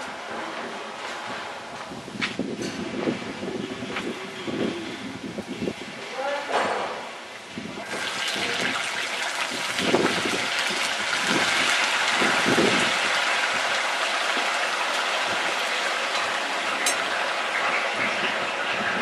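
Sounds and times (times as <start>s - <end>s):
oil splashing: 7.8s - 17.4s
potatoes sizzling in hot oil: 7.8s - 17.9s.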